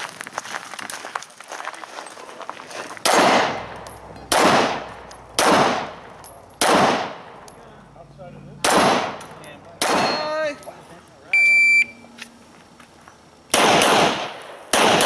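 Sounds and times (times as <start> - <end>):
pistol shots with echo: 3.0 - 7.4, 8.6 - 10.3, 13.5 - 15.0.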